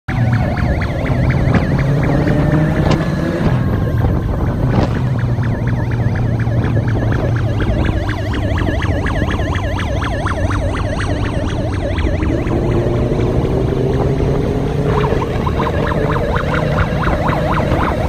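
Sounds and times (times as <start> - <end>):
siren warbling: 0.1 - 18.0
wind noise: 0.5 - 18.0.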